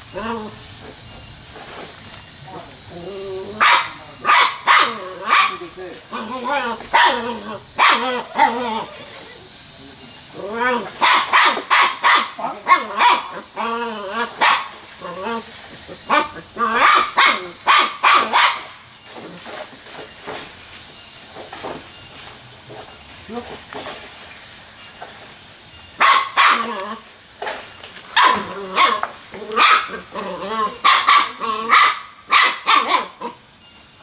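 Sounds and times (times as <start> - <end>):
puppy yapping: 28.2 - 30.0.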